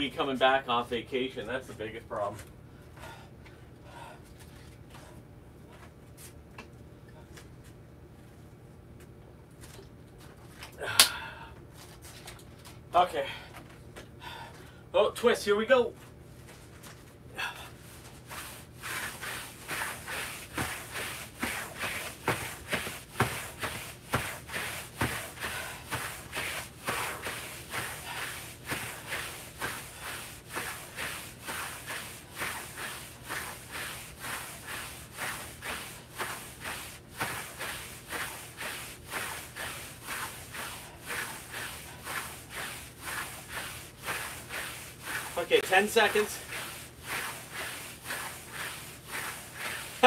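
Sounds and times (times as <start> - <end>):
battle ropes slapping floor: 18.1 - 50.0.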